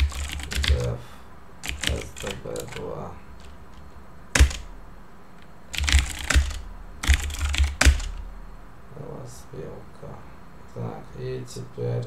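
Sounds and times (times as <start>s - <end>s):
keyboard keystrokes: 0.0s - 0.9s, 1.6s - 2.8s, 4.4s - 4.7s, 5.7s - 8.2s.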